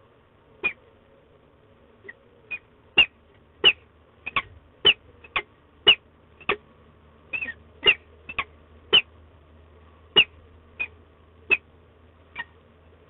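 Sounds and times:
falcon calling: 0.6s - 0.9s, 2.0s - 6.6s, 7.3s - 9.1s, 10.1s - 11.7s.

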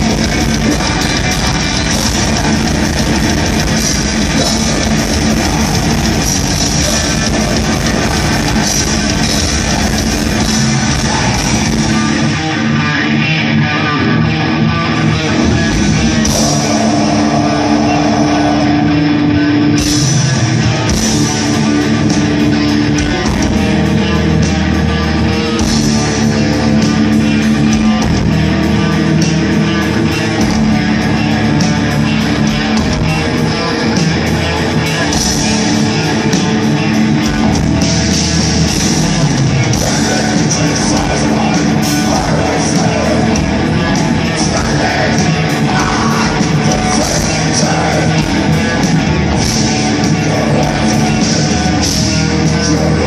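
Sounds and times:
fast drum strikes: 0.0s - 12.1s
bass guitar: 0.0s - 53.0s
distorted electric guitars: 0.0s - 53.0s.

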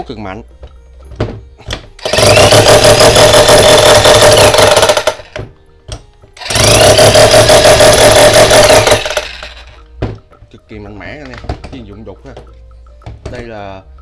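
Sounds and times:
electric chipping hammer running: 2.0s - 5.4s, 6.4s - 9.8s.

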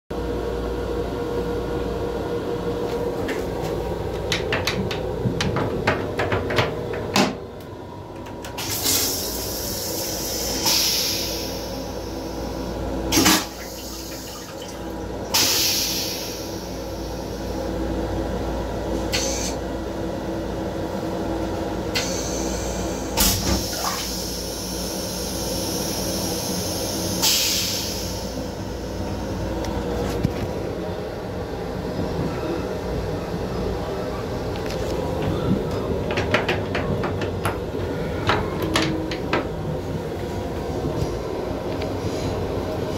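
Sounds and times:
train rumbling: 1.0s - 13.0s, 28.3s - 42.9s
toilet flushing water rush: 8.5s - 17.4s, 23.2s - 24.8s.

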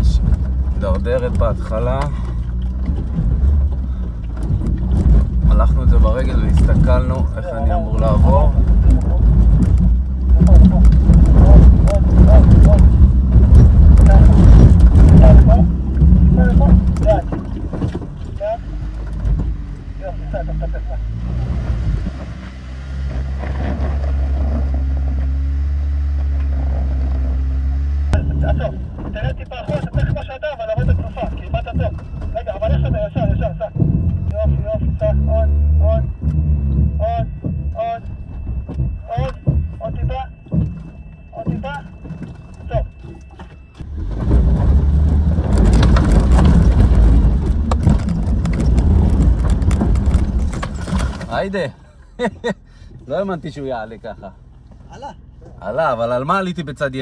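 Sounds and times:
engine running at low revs: 0.0s - 51.6s
tyres crunching over stones: 21.4s - 27.6s, 36.2s - 51.5s.

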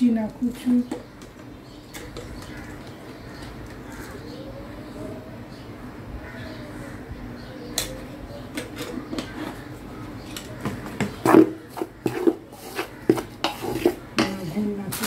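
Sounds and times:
spatula scraping a steel bowl: 11.2s - 15.0s.

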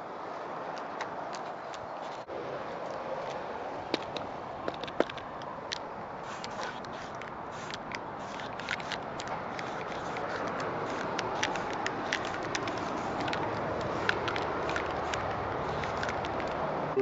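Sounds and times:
marker scratching on plaster: 6.2s - 16.5s.

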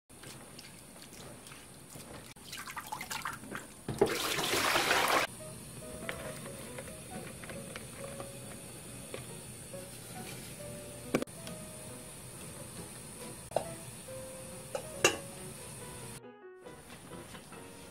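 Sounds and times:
water sloshing in a basin: 0.1s - 5.3s
water pouring into a metal sink: 0.3s - 5.3s
faint background music: 5.3s - 17.9s.

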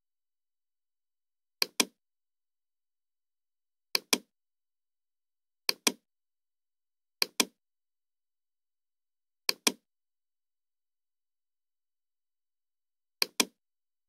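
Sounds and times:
mouse button clicks: 1.6s - 2.0s, 4.0s - 4.3s, 5.7s - 6.0s, 7.2s - 7.6s, 9.5s - 9.8s, 13.2s - 13.6s.

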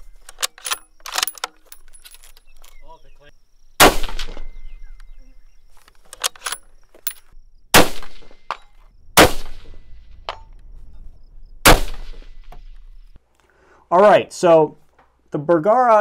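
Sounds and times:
metallic clicks: 0.0s - 2.9s, 5.8s - 7.4s
rifle shots with echo: 3.8s - 4.6s, 7.7s - 8.6s, 9.2s - 10.1s, 11.6s - 12.5s.

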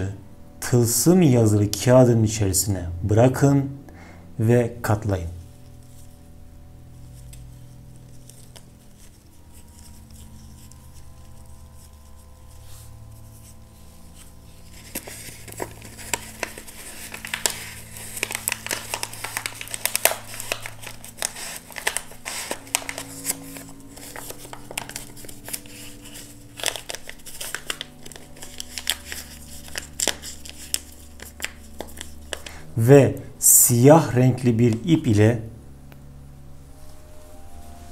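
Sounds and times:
paper crinkling and rustling: 6.9s - 32.7s.

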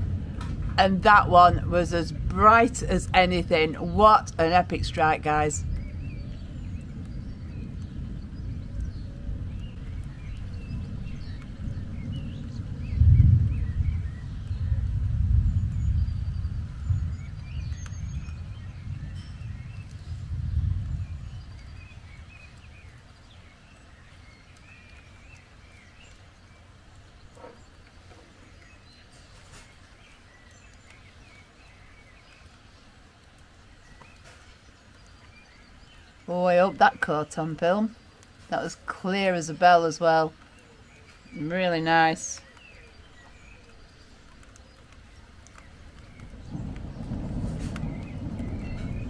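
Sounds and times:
thunder rumbling: 0.0s - 29.0s, 43.2s - 49.0s
faint low background noise: 0.0s - 49.0s
small birds chirping: 0.9s - 49.0s.

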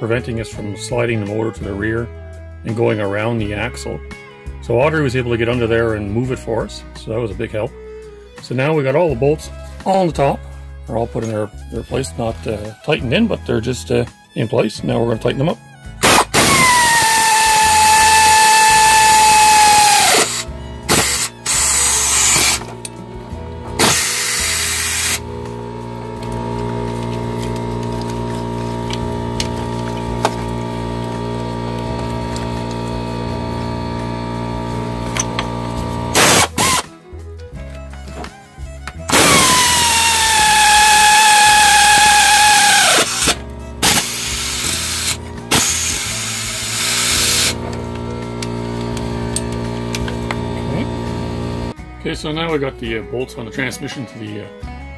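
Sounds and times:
cordless power tool whining: 16.0s - 37.0s, 37.8s - 51.8s.

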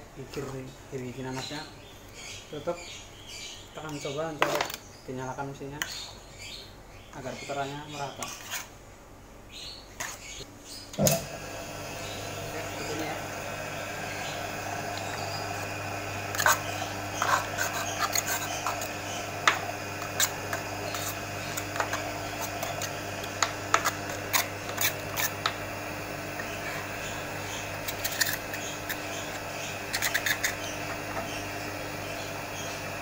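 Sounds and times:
electric motor humming: 11.0s - 33.0s
metal spatula scraping gear housing: 16.3s - 19.0s, 27.8s - 29.3s, 29.9s - 30.6s.

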